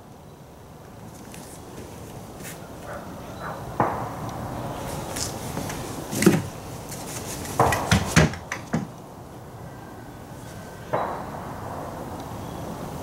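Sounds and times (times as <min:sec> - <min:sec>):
hand tools knocking on wood: 0:07.6 - 0:08.9.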